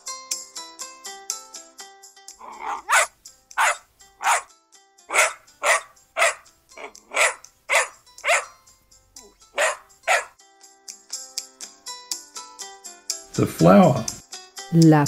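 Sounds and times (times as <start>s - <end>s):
puppy barking: 2.4s - 4.5s, 5.1s - 8.6s, 9.5s - 10.4s.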